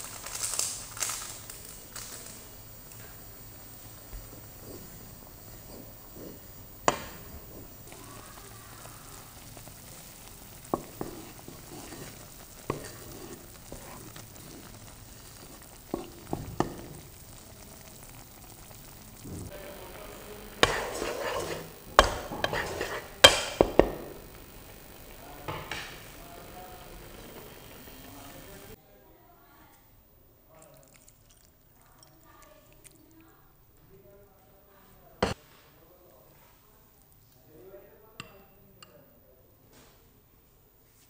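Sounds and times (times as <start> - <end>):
noodles simmering in broth: 0.0 - 28.8
scraping in a pot: 4.3 - 8.0, 9.4 - 17.3, 20.0 - 24.7
metal knocking on pan: 22.0 - 24.1.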